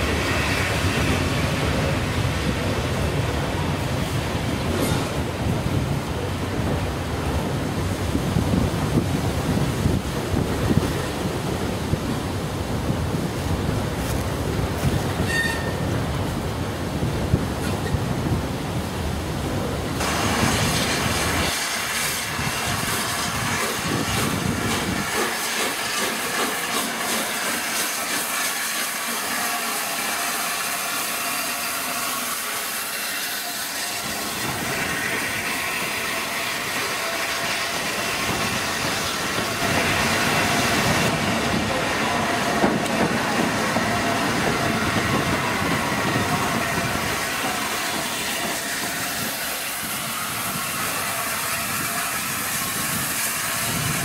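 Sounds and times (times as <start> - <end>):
steam locomotive moving slowly: 0.0 - 54.0
hiss of escaping steam: 20.0 - 54.0.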